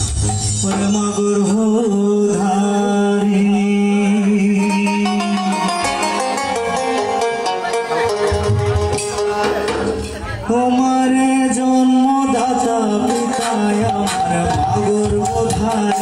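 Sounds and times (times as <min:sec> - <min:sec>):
man singing through microphone: 0:00.2 - 0:06.6, 0:10.4 - 0:16.0
electronic keyboard accompaniment: 0:04.5 - 0:16.0.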